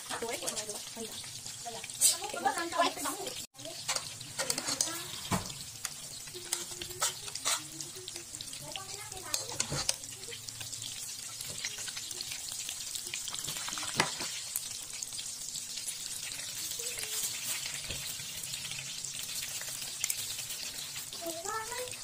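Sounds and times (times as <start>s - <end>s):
food frying in bubbling oil: 0.0s - 22.0s
chopsticks tapping a pan: 3.8s - 10.7s.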